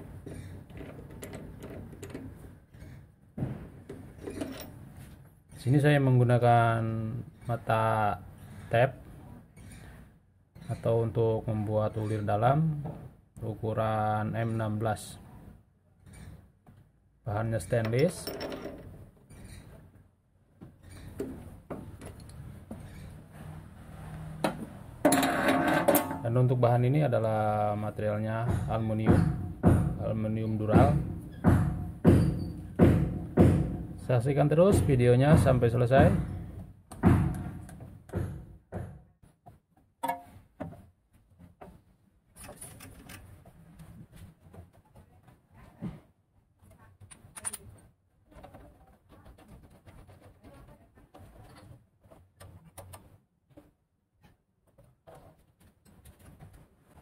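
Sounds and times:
metal clicks and knocks: 0.2 - 2.5, 36.9 - 40.8
metal parts knocking: 17.8 - 19.0.

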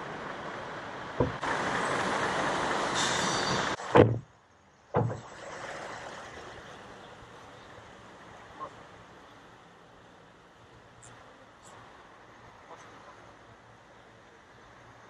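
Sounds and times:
outdoor background: 0.0 - 15.0
heavy thumps: 1.2 - 1.4
loud even hiss: 1.4 - 4.0.

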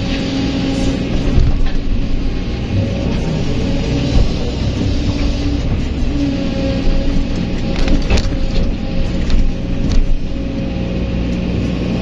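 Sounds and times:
excavator diesel engine whining: 0.0 - 12.0.

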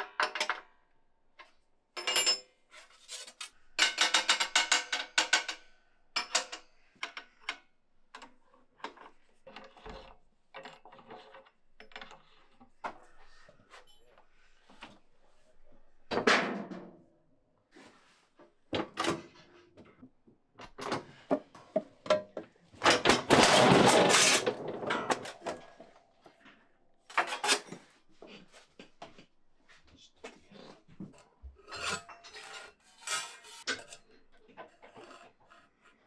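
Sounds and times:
scratching on metal: 2.8 - 3.6, 31.6 - 36.0
sheet metal scraping on steel: 31.6 - 34.1.

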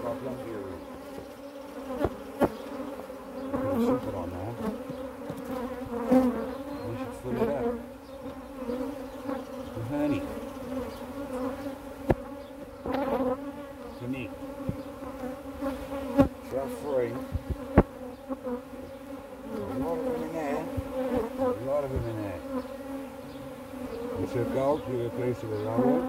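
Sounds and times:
bees buzzing: 0.0 - 26.0
bees passing close by: 0.0 - 26.0
sharp knocks on hive: 1.9 - 2.7, 3.5 - 6.3, 11.4 - 13.4, 14.6 - 14.9, 15.6 - 16.4, 17.2 - 18.1, 19.6 - 22.7.

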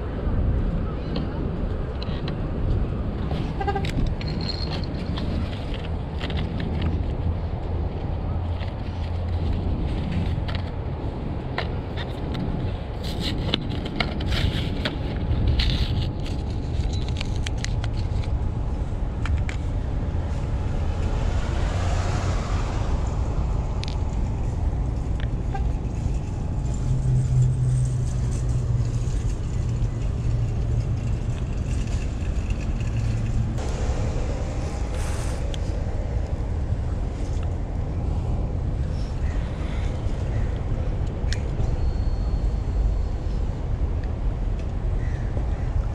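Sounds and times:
wind rumbling on microphone: 0.0 - 45.9
car passing: 18.1 - 40.3.

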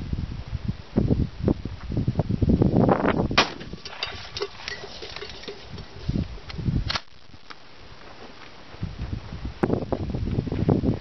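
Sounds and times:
shotgun shot: 3.4 - 3.7.

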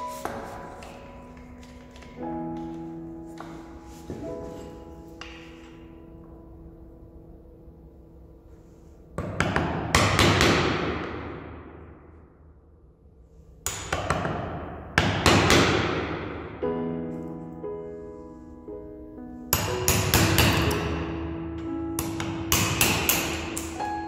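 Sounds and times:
background music: 0.0 - 24.0
wooden mallet striking chisel: 9.2 - 11.2, 13.6 - 16.1, 19.6 - 20.9, 22.0 - 23.8.

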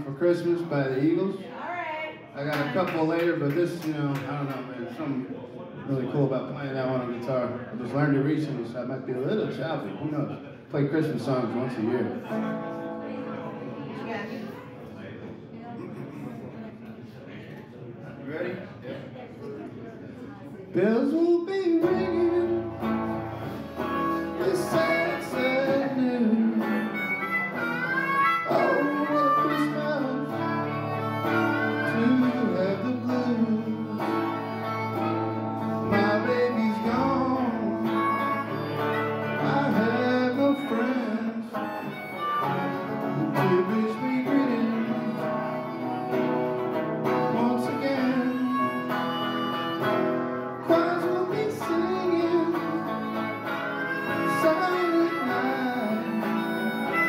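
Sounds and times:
man singing: 20.8 - 27.8, 28.4 - 57.0
electric guitar strummed: 21.6 - 57.0
harmonica playing: 21.6 - 57.0.

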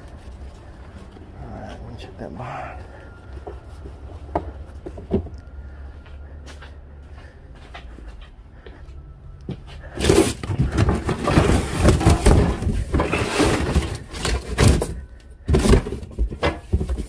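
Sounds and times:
cardboard box dragged and opened: 10.0 - 14.9.

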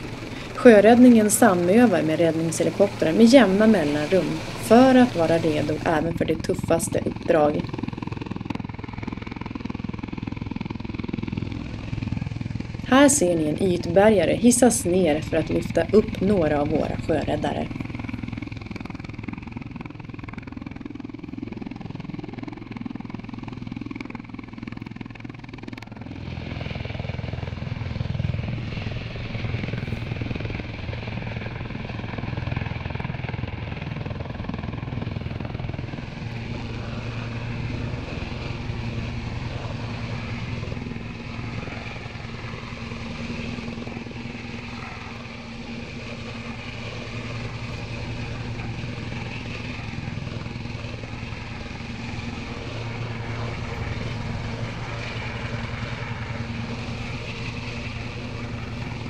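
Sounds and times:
boat motors: 0.0 - 7.8, 34.8 - 59.0
helicopter engine and rotor: 0.0 - 59.0.

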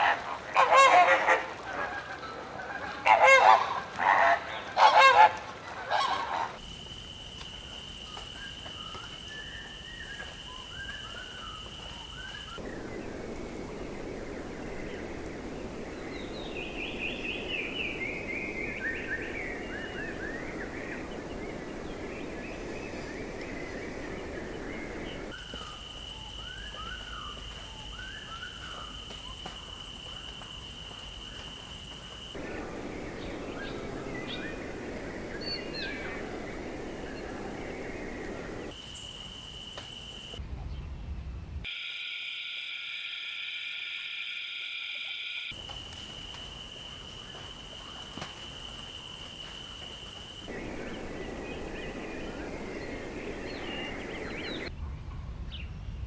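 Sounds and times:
flamingos honking: 0.0 - 6.6
descending bird notes: 41.7 - 45.6
steady high whine: 41.7 - 54.7.

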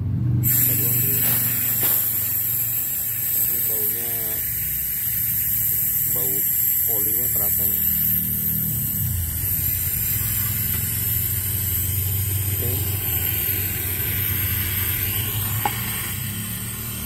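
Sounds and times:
air conditioner unit humming: 0.0 - 17.0
faint gas hiss: 0.4 - 16.2.

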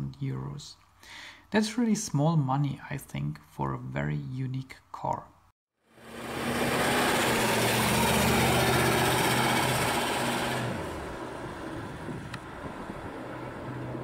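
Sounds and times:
car engine driving past: 5.9 - 14.0
tyre and road noise: 6.0 - 14.0.

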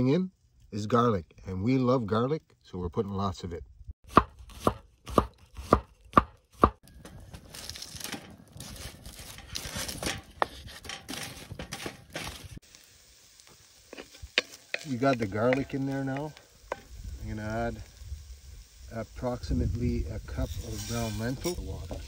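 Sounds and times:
campfire crackling and hissing: 0.0 - 22.0
knife chopping on wooden board: 4.1 - 6.8.

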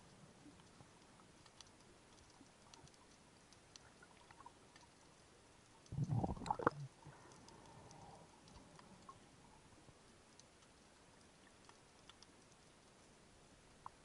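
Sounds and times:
water gurgle and bubbles: 0.0 - 9.9
faint underwater clicking crackle: 0.0 - 14.0.

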